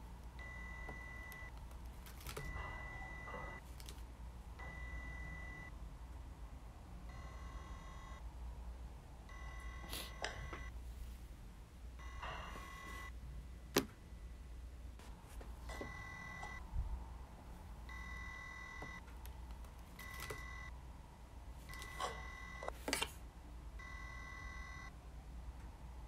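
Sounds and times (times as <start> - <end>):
electronic toy beeps: 4.6 - 5.7, 7.1 - 8.2.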